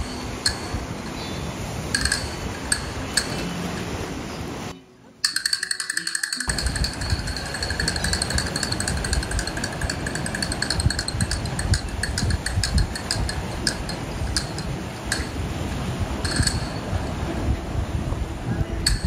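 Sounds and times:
scattered clicks: 0:00.0 - 0:00.9, 0:05.3 - 0:15.4
wind buffeting microphone: 0:00.0 - 0:04.7, 0:06.5 - 0:19.0.

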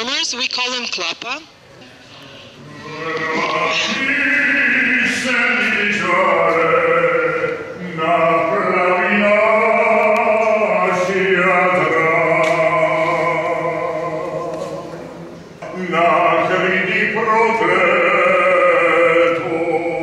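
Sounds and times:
men singing in close harmony: 0:02.6 - 0:20.0.

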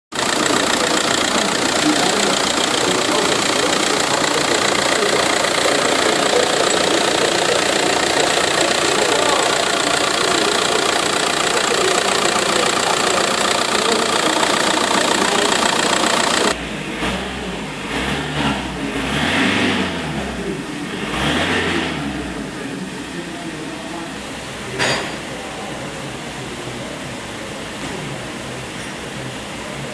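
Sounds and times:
diesel engine running and revving: 0:00.1 - 0:23.2.

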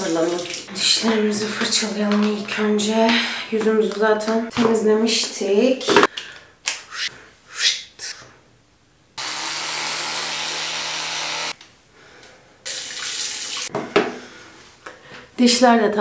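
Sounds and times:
electric toothbrush buzzing: 0:09.2 - 0:11.6.

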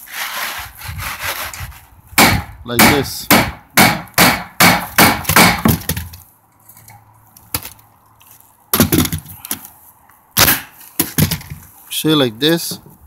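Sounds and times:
scraping on asphalt shingles: 0:00.0 - 0:02.0.

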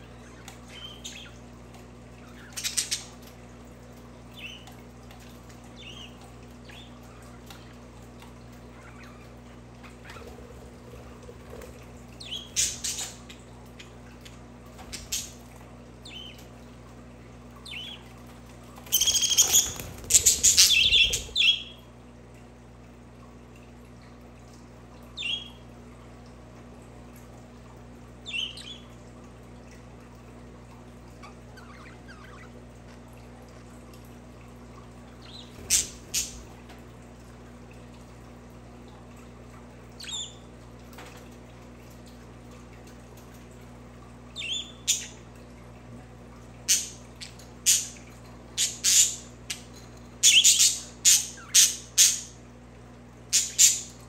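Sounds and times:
budgerigars chirping: 0:19.0 - 0:21.7.

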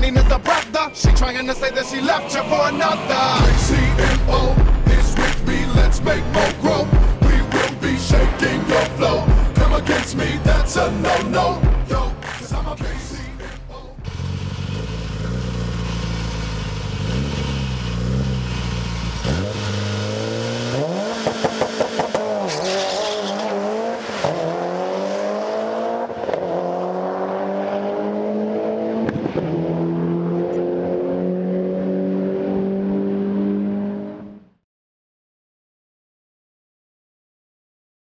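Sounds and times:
car engine accelerating hard: 0:01.8 - 0:34.5.

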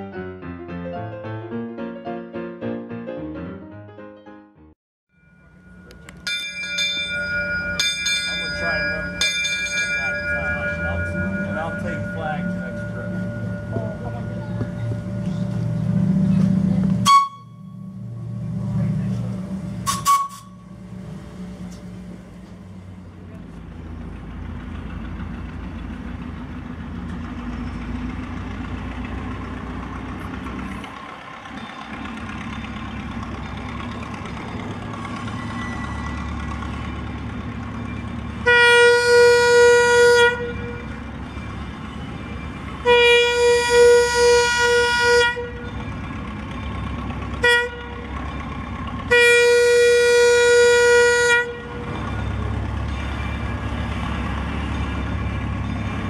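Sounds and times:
locomotive engine running: 0:05.2 - 0:56.0
train horn blasts: 0:17.0 - 0:17.9, 0:19.8 - 0:20.7, 0:38.4 - 0:41.0, 0:42.8 - 0:45.8, 0:47.4 - 0:48.2, 0:49.1 - 0:52.0.

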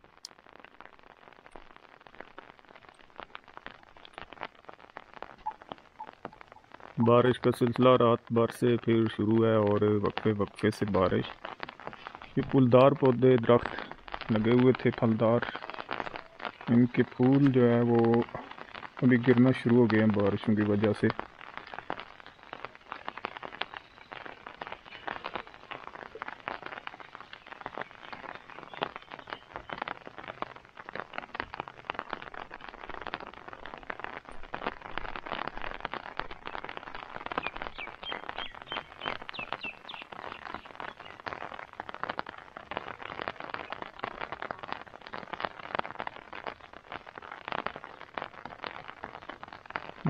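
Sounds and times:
rain pattering: 0:00.0 - 0:50.0
bird chirping: 0:22.2 - 0:25.7, 0:26.9 - 0:29.9, 0:37.3 - 0:41.3.

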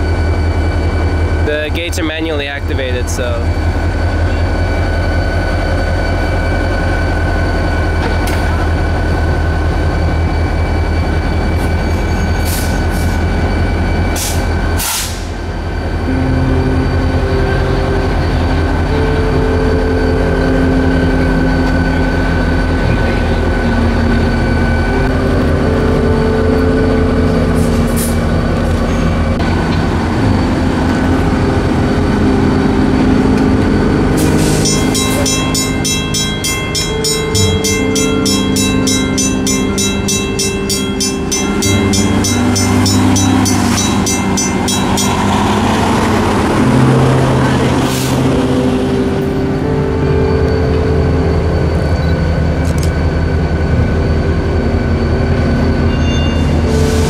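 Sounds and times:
diesel locomotive engine throbbing: 0:00.0 - 0:57.0
sharp metallic clanks: 0:34.6 - 0:45.6.

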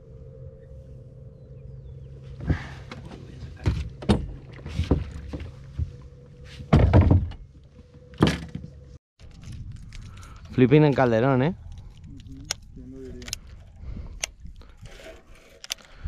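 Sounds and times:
electric trolling motor hum: 0:00.0 - 0:04.0.

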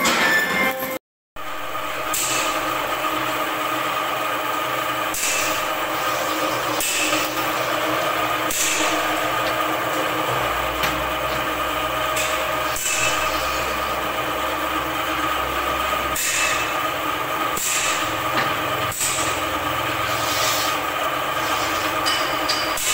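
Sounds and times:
steady mechanical hum: 0:00.0 - 0:22.9
scriber scratching steel sheet: 0:20.0 - 0:20.8.

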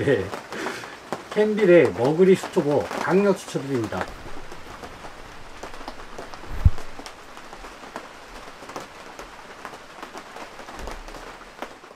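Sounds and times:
rain on a tent: 0:00.0 - 0:11.9
low thump: 0:06.4 - 0:07.1.

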